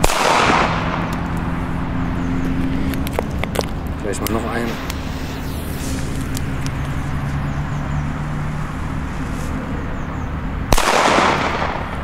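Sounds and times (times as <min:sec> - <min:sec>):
firecracker bang with echo: 0:00.0 - 0:01.1, 0:10.7 - 0:11.9.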